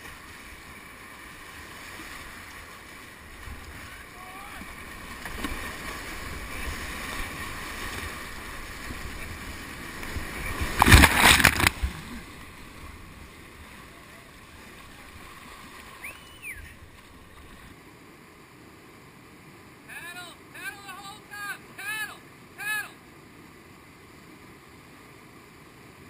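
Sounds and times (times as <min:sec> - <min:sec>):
whitewater rushing: 0:00.0 - 0:17.7
water crashing over camera: 0:03.5 - 0:13.2.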